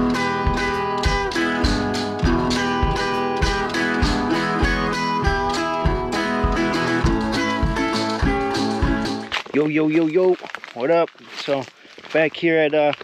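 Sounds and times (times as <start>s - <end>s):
strummed acoustic guitar music: 0.0s - 9.5s.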